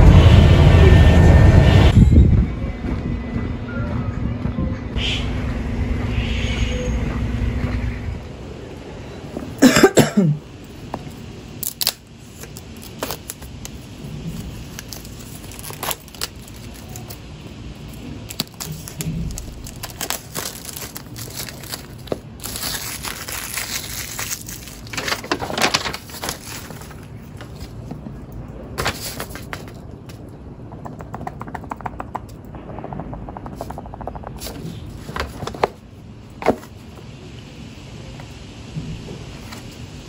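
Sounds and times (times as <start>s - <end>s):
packaging rustling and crinkling: 11.6s - 28.2s, 28.8s - 30.0s.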